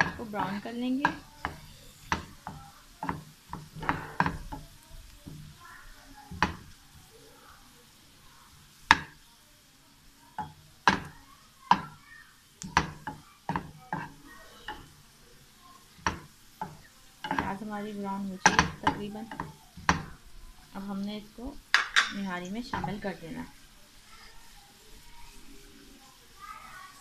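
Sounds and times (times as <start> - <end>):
spatula scraping and knocking pan: 0.0 - 7.0, 8.8 - 9.2, 10.4 - 12.0, 12.6 - 15.1, 15.8 - 24.2
onion sizzling faintly: 0.0 - 27.0.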